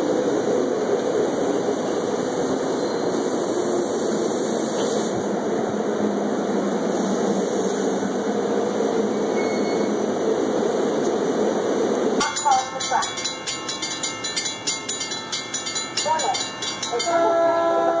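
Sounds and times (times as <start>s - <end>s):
train wheels rumbling: 0.0s - 18.0s.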